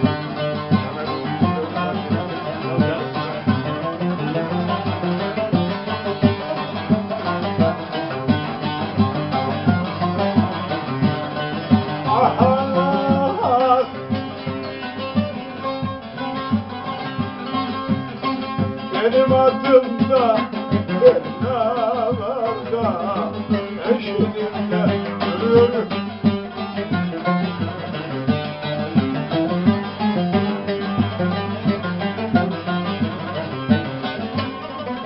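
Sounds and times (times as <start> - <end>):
plucked string instruments: 0.0 - 35.0
person singing long wavering notes: 12.0 - 14.0.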